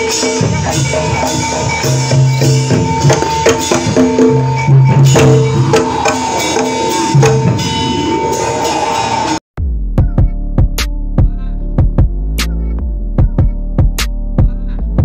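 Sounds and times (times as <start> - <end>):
hand drum strokes: 0.0 - 8.9
high sustained tone: 0.0 - 9.4
low held tones: 0.0 - 9.4
metallophone notes: 0.0 - 9.4.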